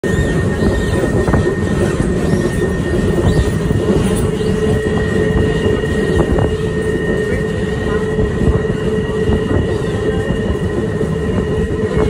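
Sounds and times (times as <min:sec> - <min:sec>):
high-pitched wheel squeal: 0:00.0 - 0:08.1
train rumbling on rails: 0:00.0 - 0:12.0.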